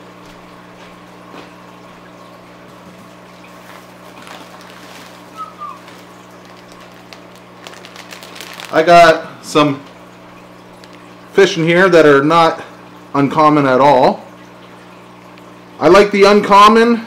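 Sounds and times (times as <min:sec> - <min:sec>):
water trickling: 0:00.0 - 0:16.7
faint steady hum: 0:00.0 - 0:17.0
plastic bag rustling with squeak: 0:03.5 - 0:09.0.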